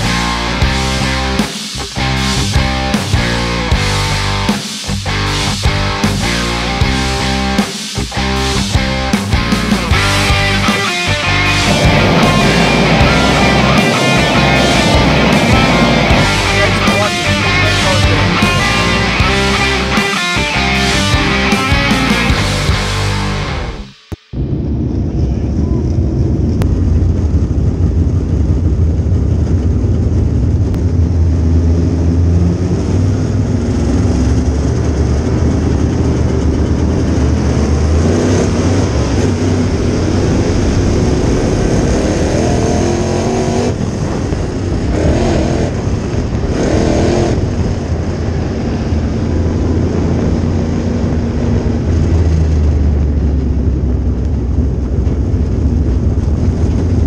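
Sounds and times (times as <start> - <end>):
race car engine running hard: 0.0 - 23.9, 25.0 - 57.0.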